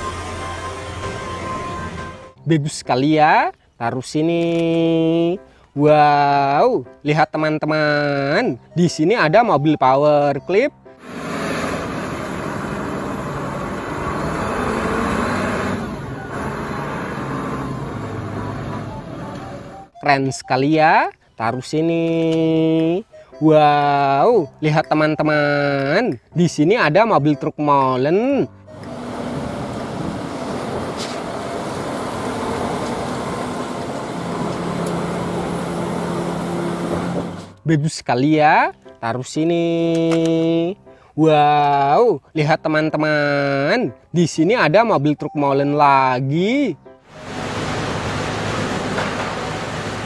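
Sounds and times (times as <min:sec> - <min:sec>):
forklift engine running: 0:00.0 - 0:02.4, 0:11.0 - 0:19.9, 0:28.6 - 0:37.6, 0:47.1 - 0:50.0
road noise: 0:00.0 - 0:02.5, 0:10.9 - 0:20.0, 0:24.2 - 0:37.7, 0:45.4 - 0:50.0.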